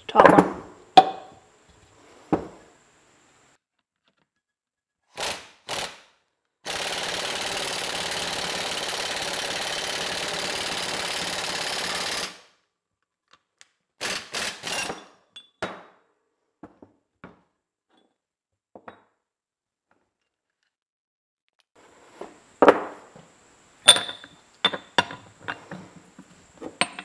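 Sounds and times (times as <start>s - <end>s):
air impact wrench hammering: 6.7s - 12.4s
metal clanks and knocks: 26.6s - 27.0s.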